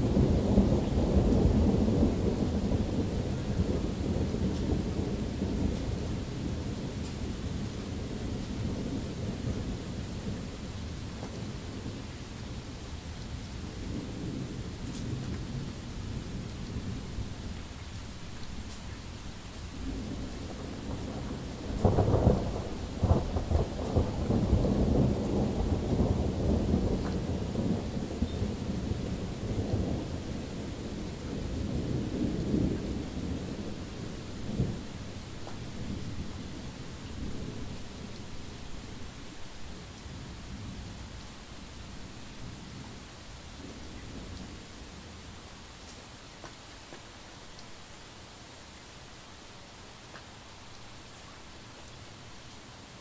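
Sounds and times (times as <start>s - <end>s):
thunder rumbling: 0.0s - 12.0s, 19.3s - 41.0s
steady rain: 0.0s - 53.0s.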